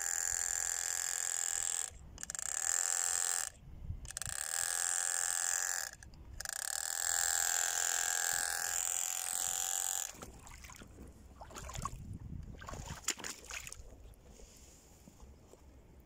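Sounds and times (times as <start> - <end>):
toy electric motor whining: 0.0 - 10.2.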